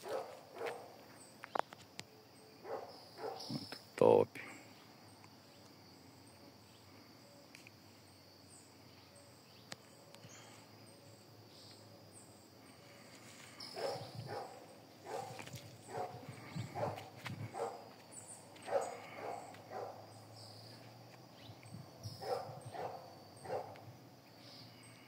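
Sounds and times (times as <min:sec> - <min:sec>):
insects chirring: 0:00.0 - 0:25.0
footsteps on dry leaves: 0:15.2 - 0:18.8.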